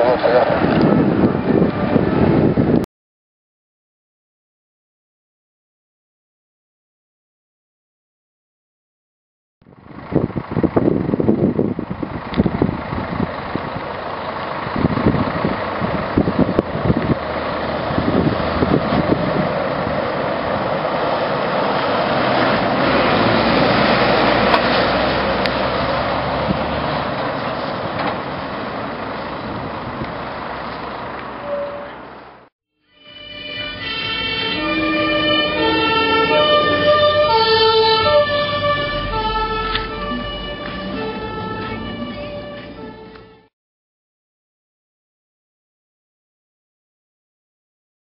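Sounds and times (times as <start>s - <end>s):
wind buffeting microphone: 0.5s - 2.8s, 9.8s - 27.0s, 29.1s - 30.4s
fire engine diesel engine passing: 9.6s - 43.5s.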